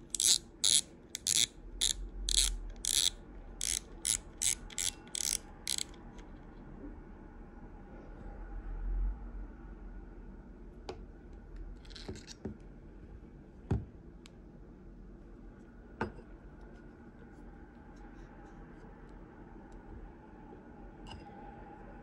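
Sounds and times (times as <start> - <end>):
fishing reel clicks and knocks: 0.1 - 6.0.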